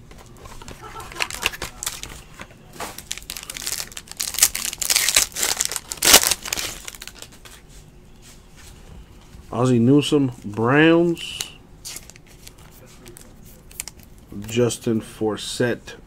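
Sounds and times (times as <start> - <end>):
foil wrapper crinkling and tearing: 0.9 - 7.4, 11.8 - 14.2.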